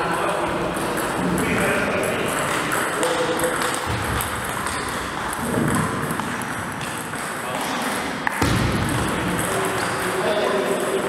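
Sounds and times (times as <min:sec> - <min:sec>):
table tennis ball bouncing: 0:00.5 - 0:11.0.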